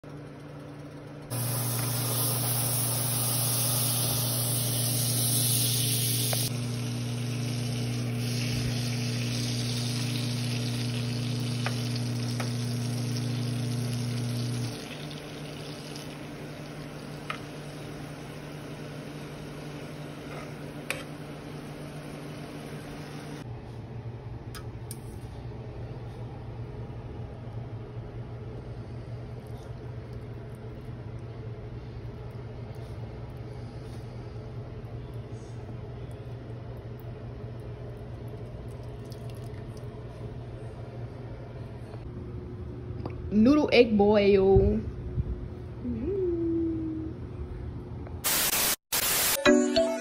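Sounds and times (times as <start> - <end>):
steady low hum: 0.0 - 48.2
butter sizzling in a pot: 1.3 - 18.1.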